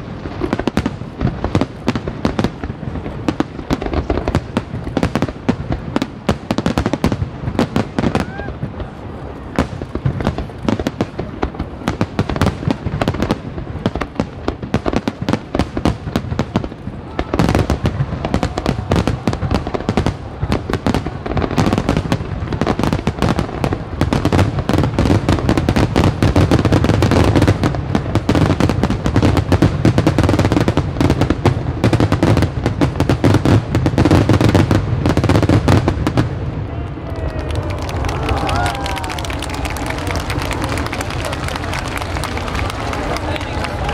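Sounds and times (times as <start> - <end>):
fireworks bangs and crackles: 0.0 - 43.9
rising firework whistle: 8.0 - 8.7, 16.9 - 23.7.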